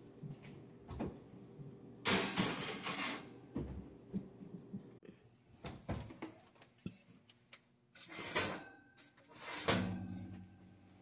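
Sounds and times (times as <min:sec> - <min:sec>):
metal oven rack scraping and rattling: 0:02.1 - 0:03.4, 0:08.0 - 0:10.5.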